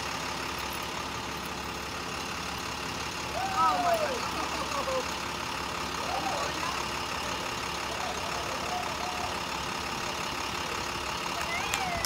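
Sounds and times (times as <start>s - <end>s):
bus engine idling: 0.0s - 12.0s
faint voices: 3.3s - 12.0s.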